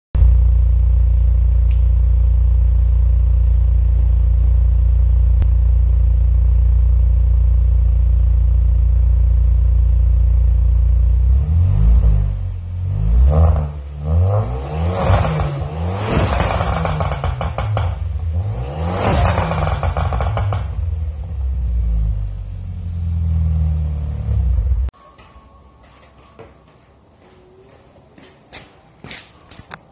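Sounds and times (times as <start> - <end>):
car engine idling: 0.2 - 11.7, 15.4 - 24.9
car engine revving: 11.0 - 24.9.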